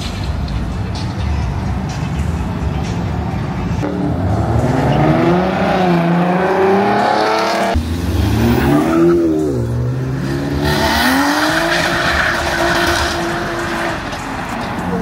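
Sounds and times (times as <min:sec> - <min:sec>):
car engines revving: 0:00.0 - 0:15.0
tires squealing: 0:03.8 - 0:15.0.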